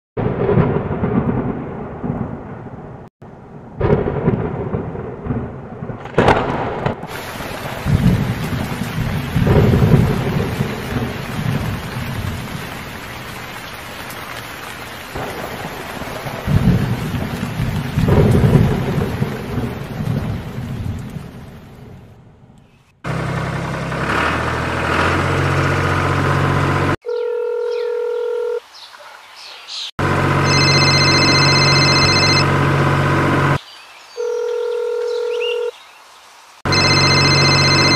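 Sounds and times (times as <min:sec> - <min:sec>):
thunder crack: 0:00.2 - 0:13.4, 0:15.1 - 0:22.4
rolling thunder: 0:00.2 - 0:14.2, 0:15.1 - 0:22.5
heavy rain hissing: 0:07.0 - 0:22.1.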